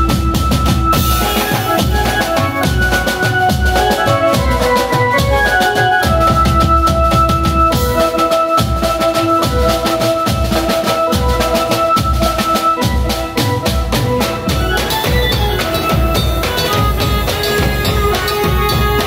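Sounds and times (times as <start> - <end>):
music with steady drum beat: 0.0 - 19.0.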